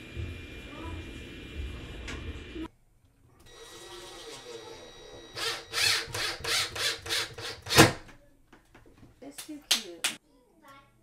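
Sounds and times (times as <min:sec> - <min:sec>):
cordless drill driving a screw: 0:05.4 - 0:07.9.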